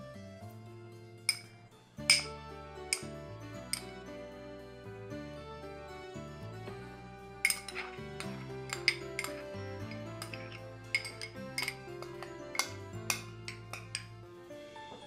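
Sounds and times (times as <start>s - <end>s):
background music with held notes: 0.0s - 15.0s
glass dishes clinking: 1.3s - 3.1s, 3.7s - 4.0s, 7.4s - 14.2s.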